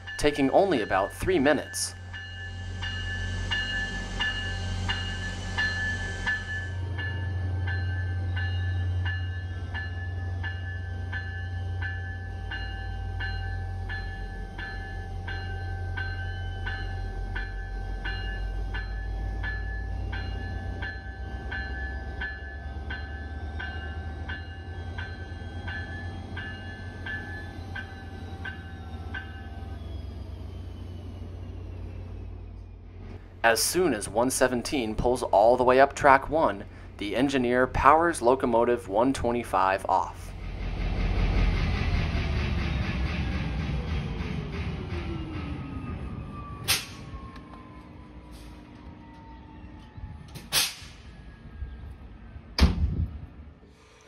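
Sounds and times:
locomotive bell ringing: 0.0 - 32.3.

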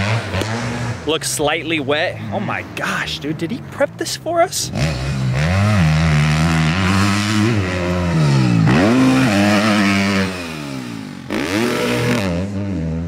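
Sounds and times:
motocross bike engine revving: 0.0 - 3.3, 4.6 - 13.0.

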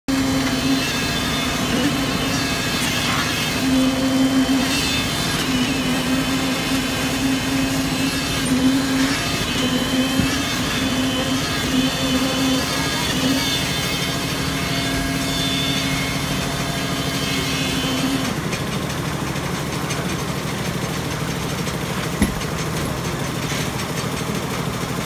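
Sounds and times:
concrete mixer engine running: 0.0 - 25.0.

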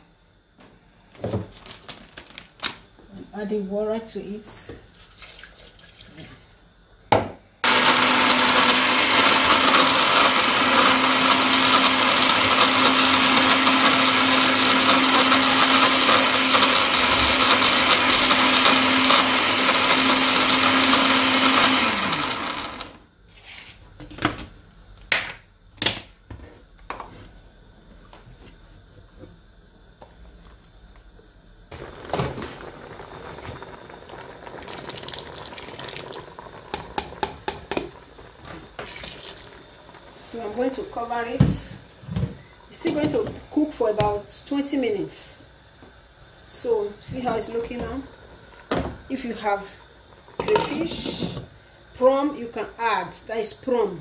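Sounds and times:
blender running: 7.6 - 23.0, 31.7 - 44.2
puree pouring into pot: 30.0 - 31.0, 31.7 - 40.3.

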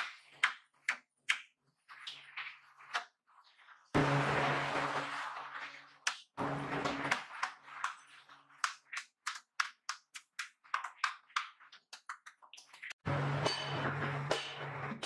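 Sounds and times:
hand tool tapping and scraping clay: 7.1 - 13.0.

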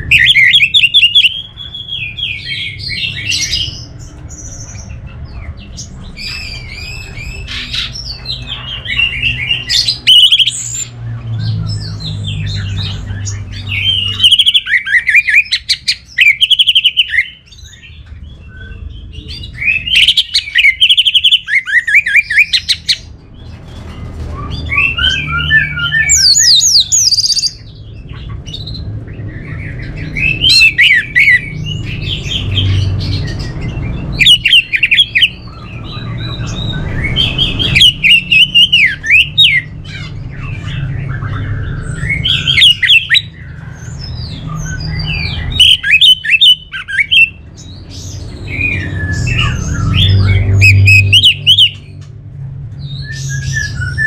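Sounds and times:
thrush singing whistled notes: 8.9 - 23.1, 33.2 - 51.9.

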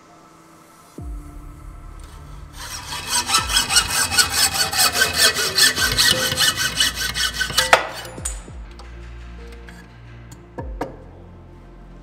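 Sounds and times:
hacksaw cutting metal tube: 2.6 - 8.5.

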